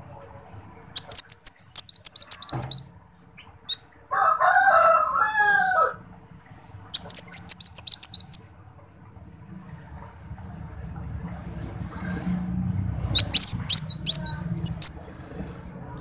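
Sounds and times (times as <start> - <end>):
rooster crowing: 4.1 - 6.0.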